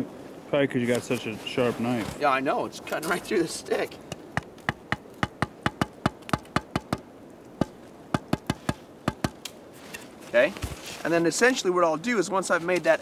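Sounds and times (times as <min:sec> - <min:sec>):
wooden baton tapping knife: 0:07.6 - 0:09.6.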